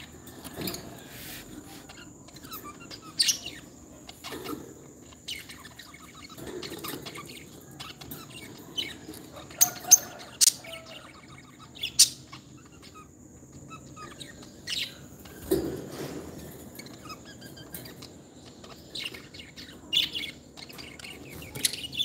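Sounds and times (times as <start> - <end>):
high-pitched bird chirps: 1.7 - 15.1.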